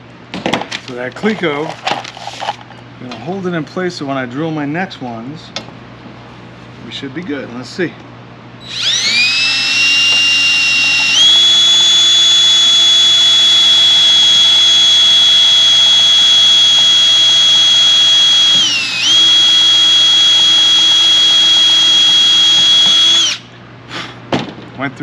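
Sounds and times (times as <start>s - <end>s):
cordless drill whining: 8.6s - 23.5s.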